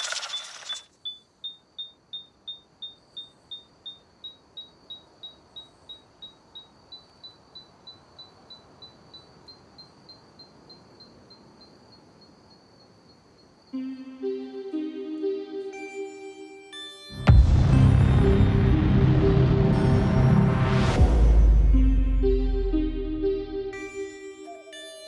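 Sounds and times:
faint steady high tone: 23.1s - 25.0s.

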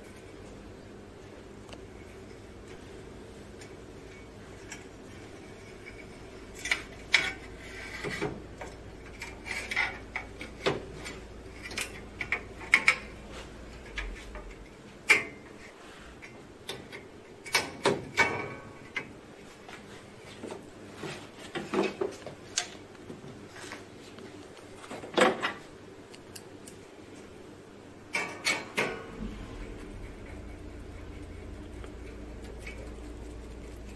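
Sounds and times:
metal parts clicking and clanking: 5.8s - 13.2s.

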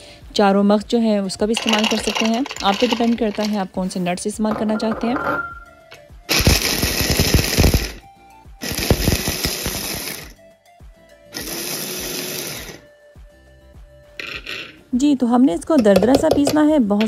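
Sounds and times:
nut pieces rattling in jar: 1.5s - 3.7s
electric chopper grinding nuts: 1.6s - 3.6s, 6.3s - 8.0s, 8.6s - 10.4s, 11.3s - 12.9s, 14.2s - 14.8s.

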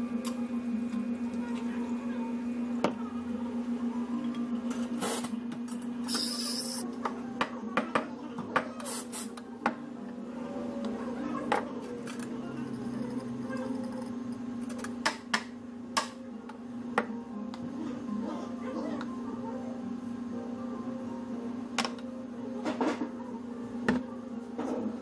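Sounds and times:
espresso machine hum: 0.0s - 7.1s, 11.8s - 15.9s
espresso machine hissing: 5.0s - 5.3s, 6.0s - 6.8s.

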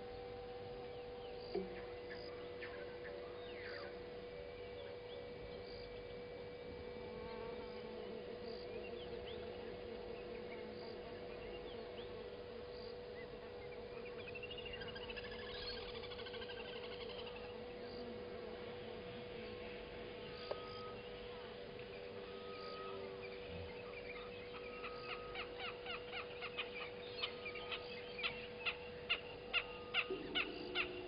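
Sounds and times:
insect drone: 0.0s - 31.0s
bird's descending note run: 22.1s - 31.0s.

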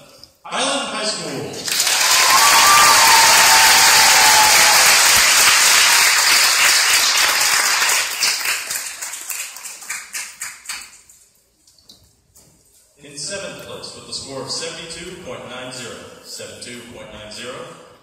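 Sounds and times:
audience applauding: 1.6s - 10.8s.

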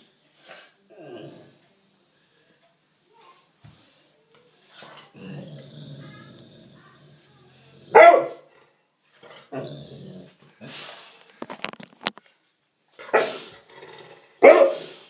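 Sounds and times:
dog growling: 0.9s - 1.6s, 4.8s - 10.6s, 13.2s - 14.4s
dog barking loudly: 7.9s - 8.4s, 14.4s - 14.9s.

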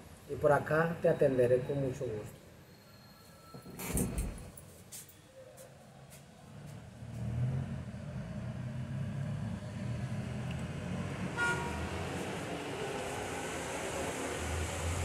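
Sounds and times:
road traffic rumble: 5.9s - 15.0s
car horn toot: 11.4s - 11.9s.

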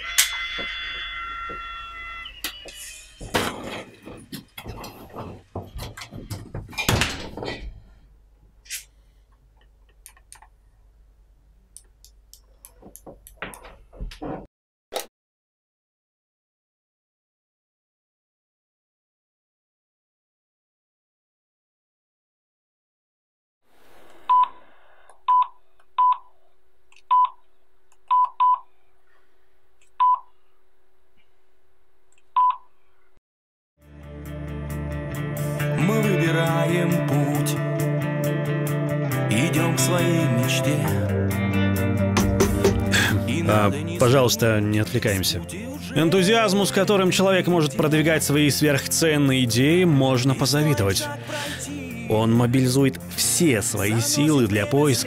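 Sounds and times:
footsteps: 0.2s - 8.0s, 12.7s - 14.5s, 42.2s - 43.2s
door shutting: 2.4s - 7.8s.

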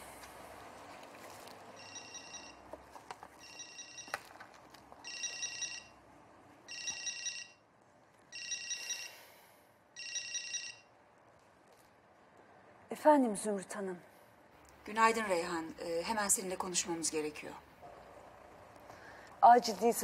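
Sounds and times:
mobile phone ringing: 1.8s - 2.7s, 3.4s - 4.4s, 5.0s - 6.0s, 6.7s - 7.6s, 8.3s - 9.3s, 10.0s - 10.9s.

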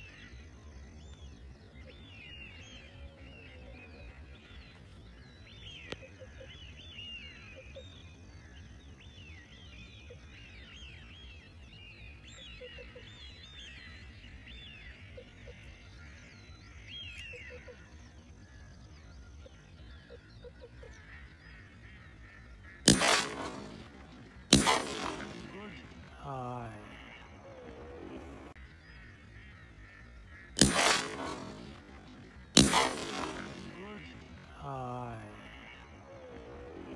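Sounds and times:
small birds chirping: 0.0s - 36.9s
sharp click: 22.9s - 25.4s.

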